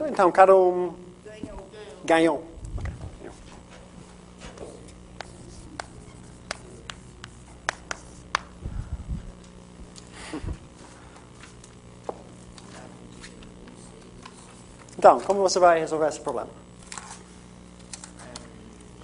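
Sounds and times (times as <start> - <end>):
steady low hum: 0.0 - 19.0
chalk tapping on chalkboard: 4.5 - 8.5.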